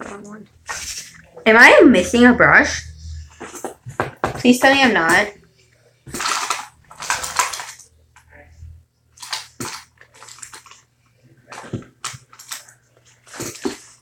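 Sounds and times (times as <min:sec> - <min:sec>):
objects knocking and clicking: 0:03.3 - 0:05.3
hands rummaging and rustling: 0:06.1 - 0:07.8.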